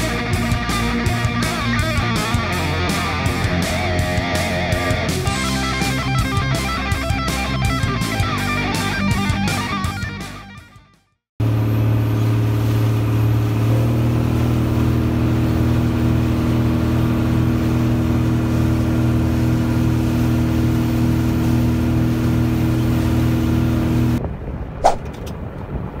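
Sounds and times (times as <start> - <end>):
boat engine running: 0.0 - 9.4, 11.4 - 24.2
short sharp sound: 24.8 - 25.3.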